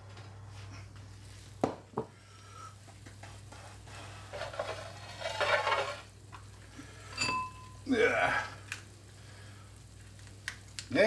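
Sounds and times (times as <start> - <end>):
kitchen handling noise: 7.1 - 7.7.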